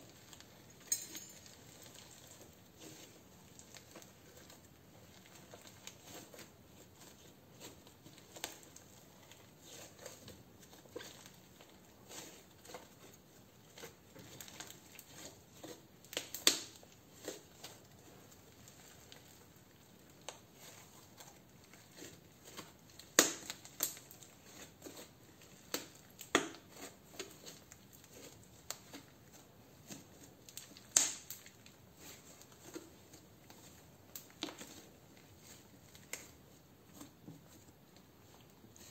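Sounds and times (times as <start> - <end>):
slime clicking and popping: 16.1 - 16.8, 22.9 - 24.9, 30.5 - 31.5.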